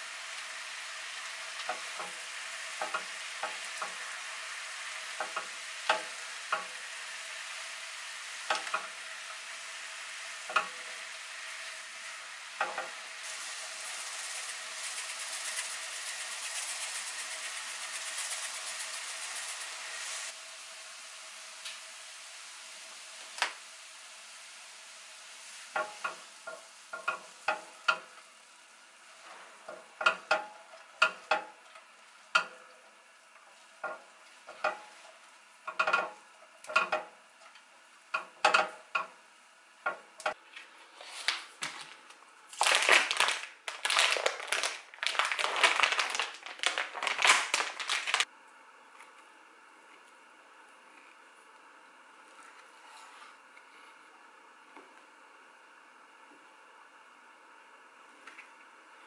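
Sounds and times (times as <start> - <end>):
stirring and frying: 0.0 - 20.8, 21.6 - 39.1
utensil tapping a pan: 25.7 - 28.1.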